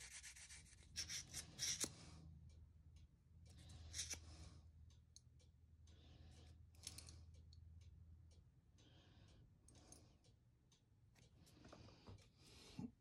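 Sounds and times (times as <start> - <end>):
sanding block scratching metal: 0.0 - 1.8
low steady hum: 0.1 - 13.0.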